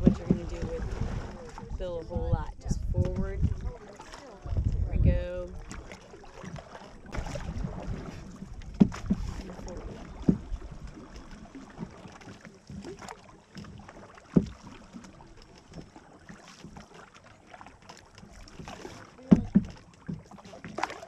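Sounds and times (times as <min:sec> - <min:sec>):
canoe paddle strokes: 0:00.0 - 0:21.0.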